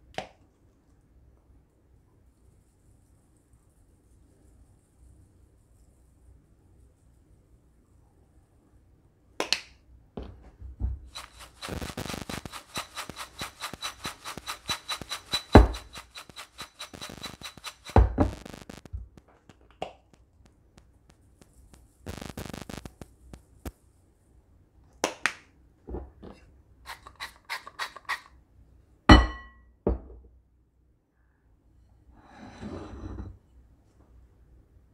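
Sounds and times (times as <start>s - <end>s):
popcorn rattling in a bowl: 11.1s - 18.6s
oil mister clicking sprays: 11.1s - 18.8s
glass clink on countertop: 29.1s - 30.0s.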